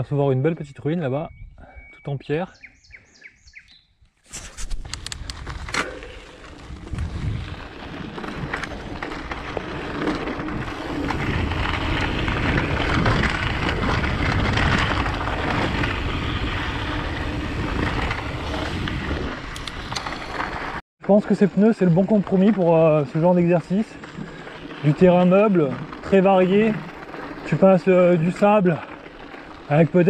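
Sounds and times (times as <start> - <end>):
bike tyres rumbling on gravel: 4.3 - 30.0.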